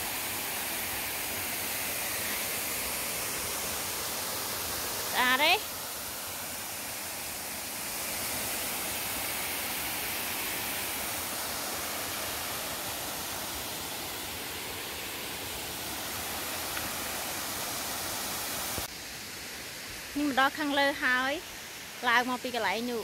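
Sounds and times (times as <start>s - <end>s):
waterfall rushing: 0.0s - 22.0s.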